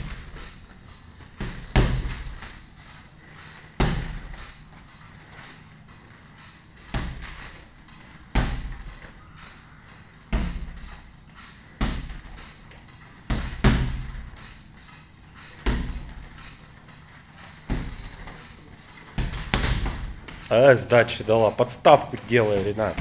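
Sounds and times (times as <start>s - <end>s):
gloved punches on punching ball: 1.4s - 2.4s, 3.8s - 4.4s, 6.9s - 7.4s, 8.3s - 8.9s, 10.3s - 10.8s, 11.8s - 12.5s, 13.3s - 14.3s, 15.6s - 16.3s, 17.7s - 18.2s, 19.2s - 20.3s.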